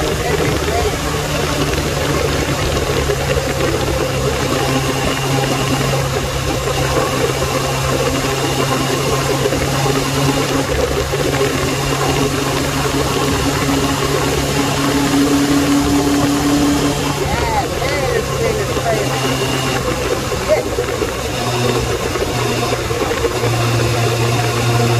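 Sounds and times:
motorcycle engine running: 0:00.0 - 0:24.9.

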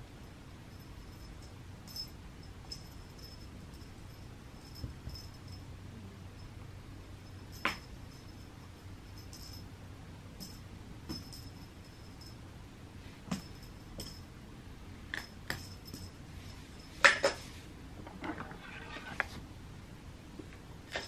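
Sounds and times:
light clinks and taps: 0:10.4 - 0:12.4, 0:13.3 - 0:14.3, 0:15.1 - 0:16.2.

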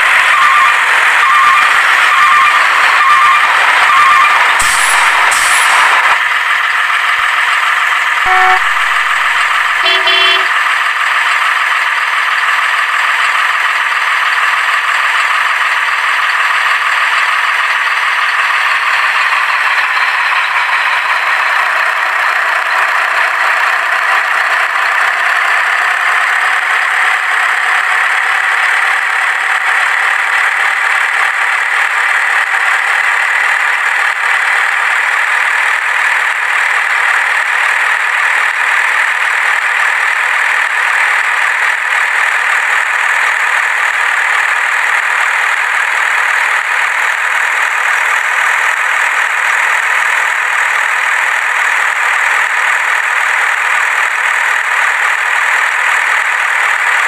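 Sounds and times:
truck engine drone: 0:00.0 - 0:57.0
truck horn tooting: 0:08.2 - 0:10.7.

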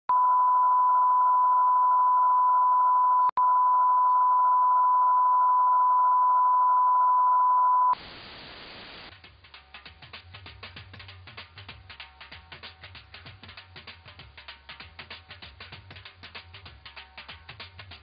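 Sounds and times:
faint hiss: 0:08.0 - 0:09.2.

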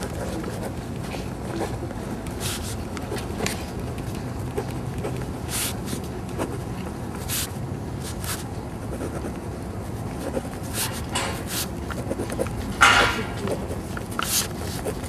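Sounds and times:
pen scratching on paper: 0:00.0 - 0:15.0
low background rumble: 0:03.0 - 0:10.8.

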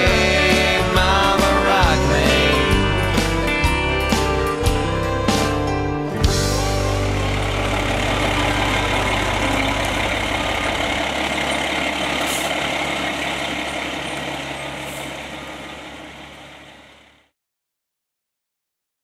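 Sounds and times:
fire engine rumbling: 0:00.0 - 0:17.3
short air hisses: 0:12.2 - 0:12.6.

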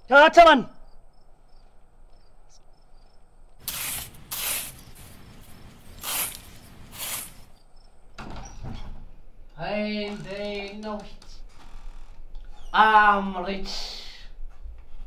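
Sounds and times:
faint crickets chirping: 0:00.0 - 0:11.2
spade digging into soil: 0:03.6 - 0:07.5.

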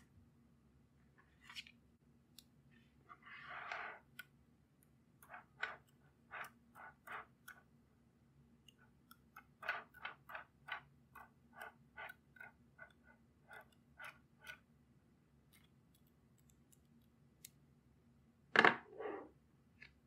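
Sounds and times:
magnetic balls clicking together: 0:08.7 - 0:14.7.

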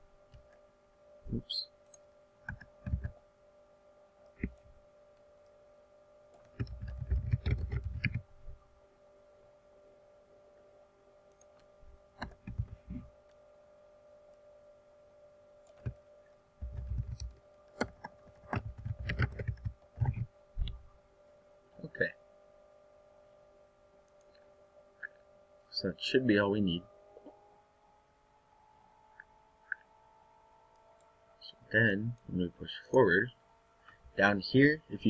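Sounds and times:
steady hum: 0:00.0 - 0:35.0
computer keyboard typing: 0:02.4 - 0:03.2, 0:06.3 - 0:08.2, 0:16.6 - 0:20.2.

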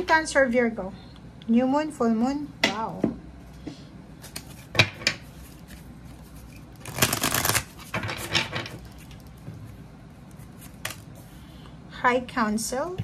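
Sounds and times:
cards being shuffled: 0:04.2 - 0:11.2.

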